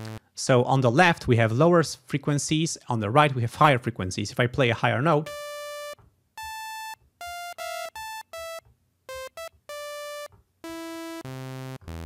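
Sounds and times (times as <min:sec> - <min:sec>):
synthesizer sawtooth notes: 0:00.0 - 0:00.2, 0:05.2 - 0:12.0.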